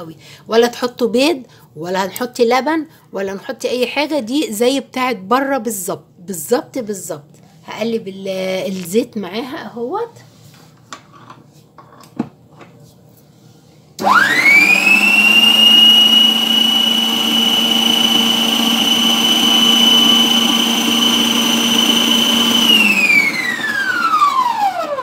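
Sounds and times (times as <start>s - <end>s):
stand mixer motor whine: 14.0s - 25.0s.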